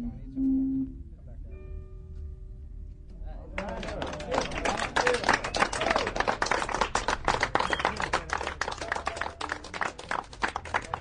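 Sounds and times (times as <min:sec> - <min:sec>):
crowd clapping: 0:03.5 - 0:11.0.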